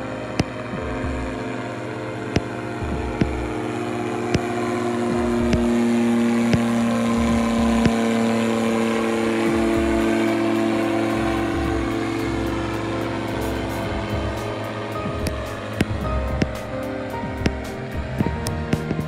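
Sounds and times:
propeller engine droning: 0:00.0 - 0:19.0
sharp ticks: 0:02.3 - 0:03.6, 0:04.3 - 0:08.2, 0:09.2 - 0:19.0.

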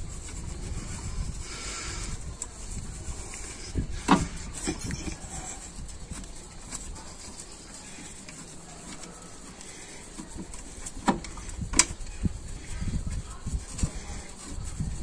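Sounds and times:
metal handling noise: 0:03.6 - 0:06.9, 0:07.9 - 0:12.1.

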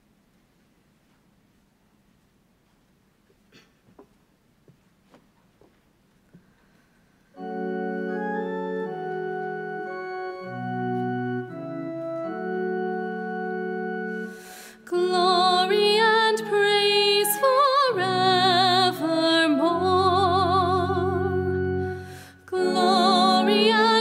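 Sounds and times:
organ playing sustained chords: 0:07.4 - 0:24.0
woman singing with vibrato: 0:14.8 - 0:24.0.

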